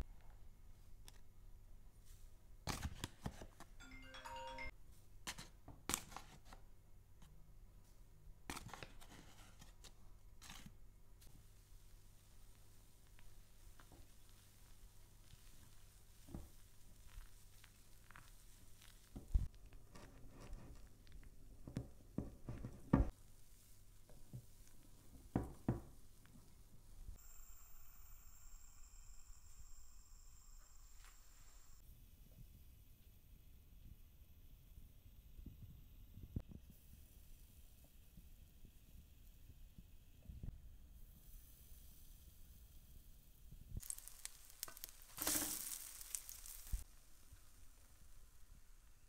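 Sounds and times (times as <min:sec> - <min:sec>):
short ringing chime: 0:03.8 - 0:04.7.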